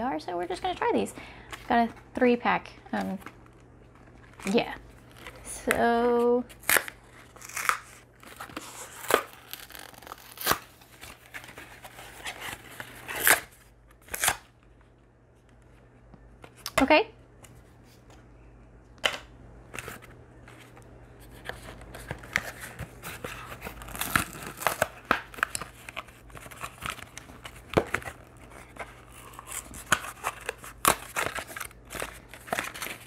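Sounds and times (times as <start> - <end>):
packaging being torn and crinkled: 6.6 - 14.5, 21.3 - 33.0.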